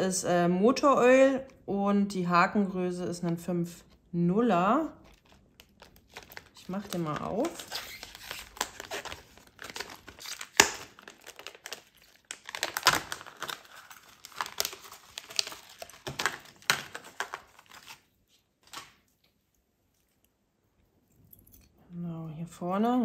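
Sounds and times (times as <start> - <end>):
plastic packaging crinkling: 4.8 - 19.2.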